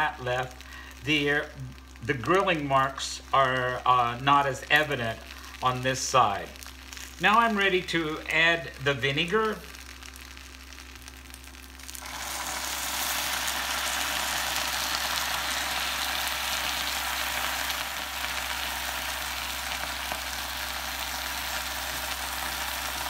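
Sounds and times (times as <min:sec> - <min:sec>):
vinegar sizzling on griddle: 0:00.0 - 0:23.0.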